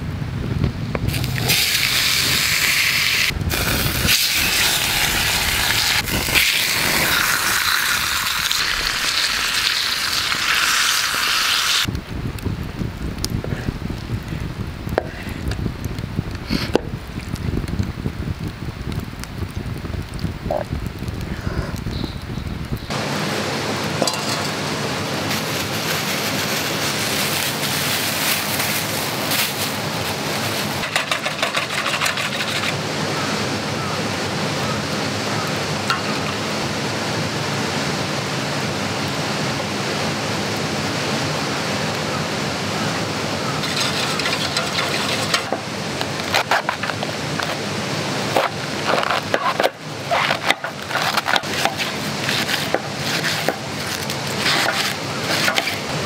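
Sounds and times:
wood fire hissing: 0:00.3 - 0:56.0
whisk stirring in metal bowl: 0:43.6 - 0:45.4.

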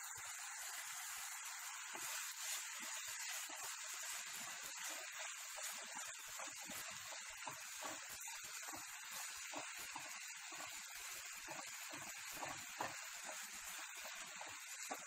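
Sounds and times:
vegetables sizzling in a pan: 0:00.0 - 0:15.0
wooden spatula scraping a pan: 0:00.6 - 0:15.0.

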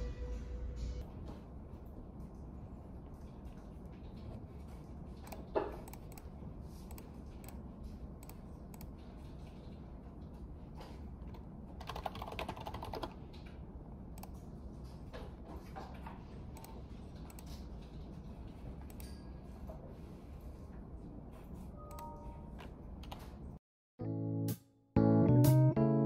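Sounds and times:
low office hum: 0:00.0 - 0:23.6
keyboard typing: 0:11.3 - 0:13.5.

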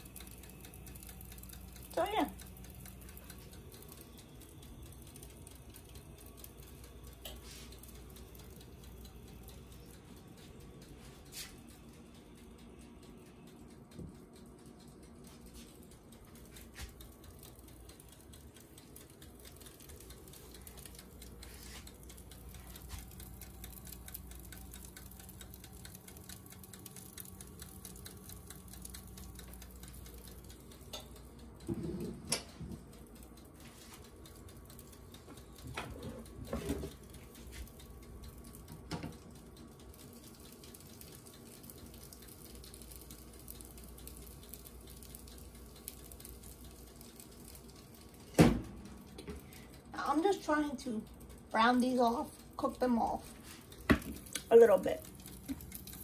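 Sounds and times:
meatballs frying in pan: 0:17.9 - 0:32.7, 0:34.8 - 0:49.6, 0:52.6 - 0:56.0.

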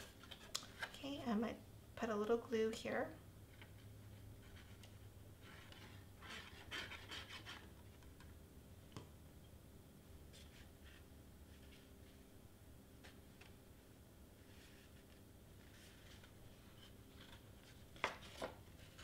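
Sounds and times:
cardstock rustling and scraping: 0:03.6 - 0:08.1, 0:14.4 - 0:19.0.

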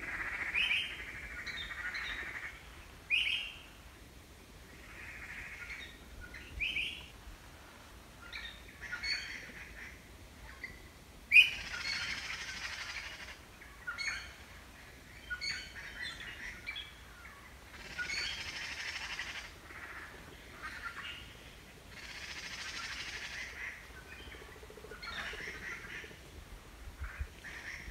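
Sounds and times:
harsh rattling bird calls: 0:00.0 - 0:03.7, 0:04.8 - 0:07.0, 0:10.6 - 0:26.2.

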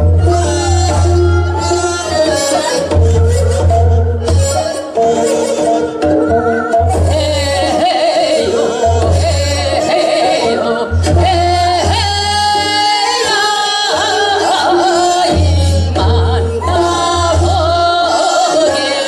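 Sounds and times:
amplified backing music: 0:00.0 - 0:19.0
women singing folk song: 0:04.4 - 0:19.0.

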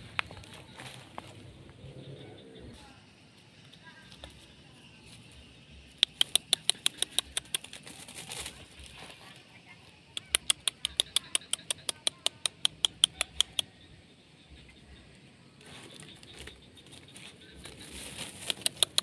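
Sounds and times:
rapid tongue clicks: 0:05.9 - 0:07.8, 0:10.1 - 0:13.8, 0:18.3 - 0:19.0.

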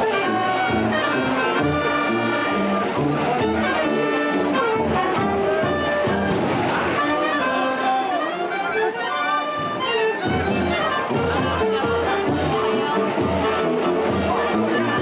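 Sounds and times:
wind band playing: 0:00.0 - 0:15.0
bass drum beat: 0:10.3 - 0:15.0.

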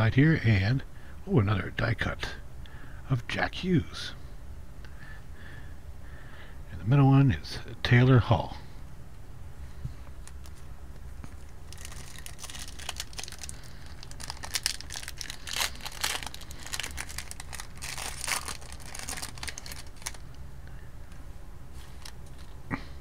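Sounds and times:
card pack wrapper crinkling: 0:11.2 - 0:20.4, 0:21.8 - 0:22.6.

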